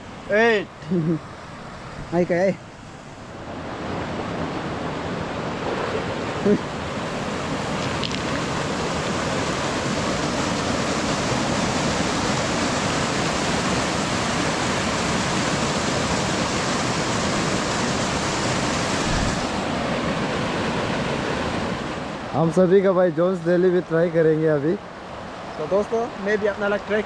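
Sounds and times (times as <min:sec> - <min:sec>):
waterfall pouring over boulders: 0:06.4 - 0:21.8.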